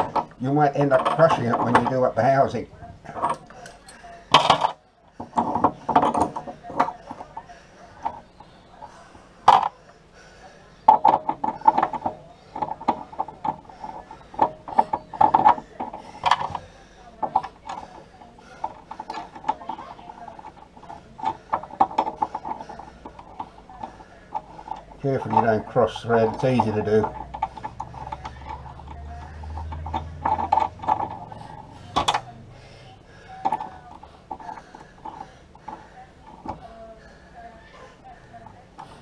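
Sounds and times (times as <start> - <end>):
small metallic clicks and scrapes: 10.9 - 32.4.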